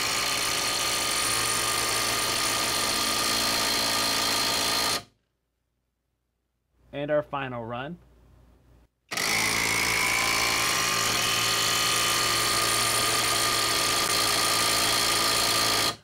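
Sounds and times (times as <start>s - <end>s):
impact wrench running: 0.0s - 5.1s, 9.1s - 16.0s.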